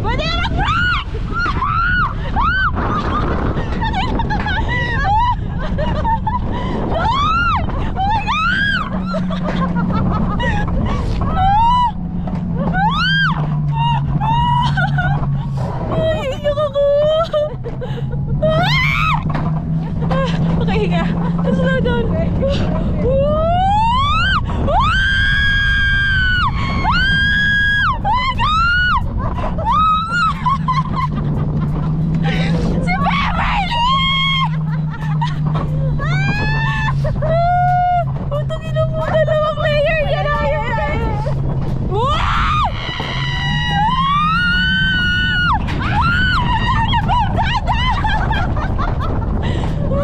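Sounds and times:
sled rumbling on track: 0.0s - 50.0s
wind on microphone: 0.0s - 50.0s
woman screaming: 0.1s - 2.8s, 7.0s - 9.4s, 12.6s - 15.2s, 23.0s - 29.0s, 32.8s - 34.7s, 41.9s - 48.3s.

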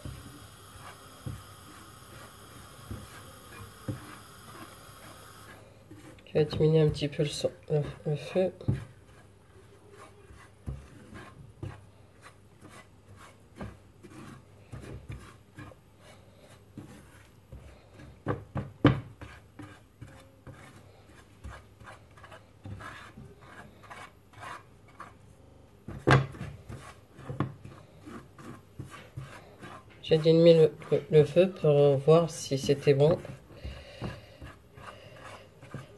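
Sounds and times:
spatula scraping a pan: 0.0s - 18.4s, 19.1s - 25.3s, 26.2s - 35.9s.

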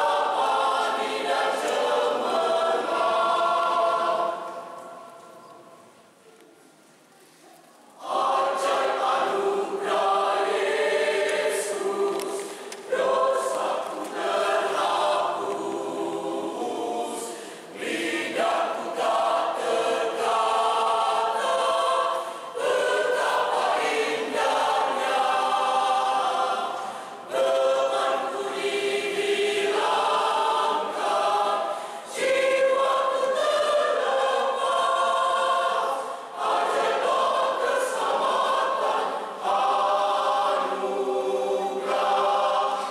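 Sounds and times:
choir singing: 0.0s - 6.0s, 8.0s - 42.9s
singers breathing: 12.4s - 12.8s, 17.3s - 17.8s, 26.8s - 27.3s, 31.6s - 32.2s.

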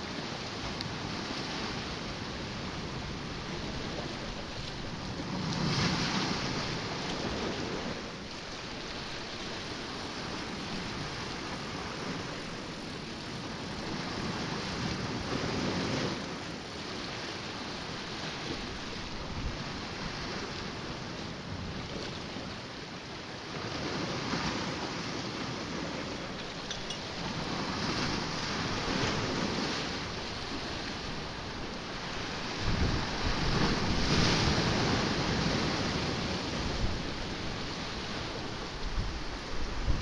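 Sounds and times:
waves washing against rocks: 0.0s - 40.0s
wind on microphone: 0.0s - 40.0s.

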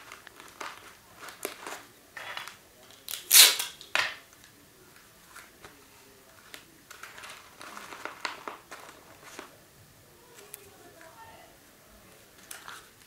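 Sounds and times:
paper rustling and crinkling: 0.0s - 3.6s, 4.9s - 9.6s, 12.3s - 13.0s.

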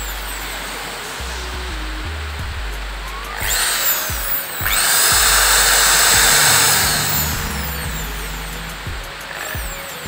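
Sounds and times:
drill motor whining: 3.2s - 10.0s.

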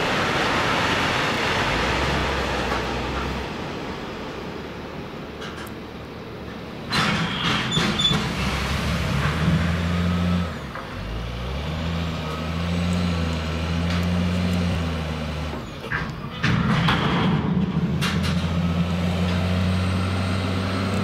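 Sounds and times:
loud metallic clank: 15.9s - 18.7s.

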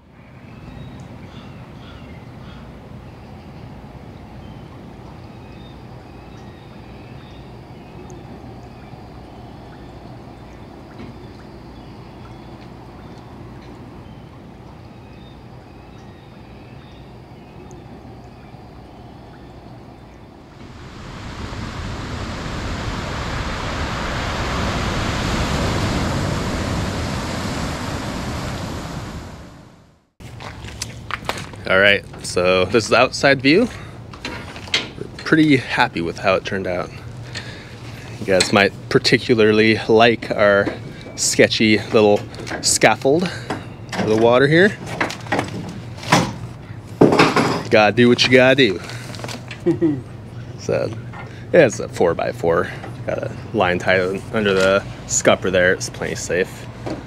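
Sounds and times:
steady low rumble: 17.7s - 30.2s
steady rushing noise: 20.3s - 30.2s.

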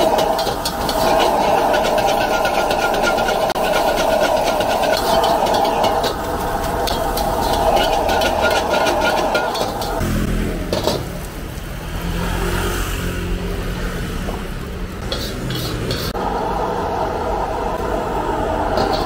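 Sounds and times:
metal ladle scraping a wok: 0.0s - 11.1s, 15.0s - 16.2s, 18.6s - 19.0s
gas burner roaring: 0.0s - 19.0s.

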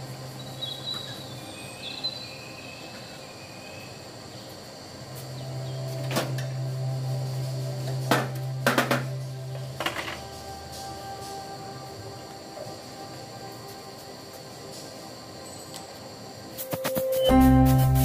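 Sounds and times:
low hum: 5.0s - 14.7s.

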